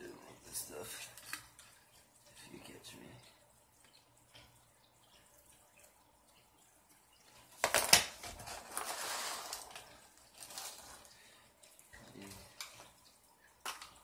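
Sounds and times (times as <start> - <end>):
scraping and rustling: 7.7 - 11.2.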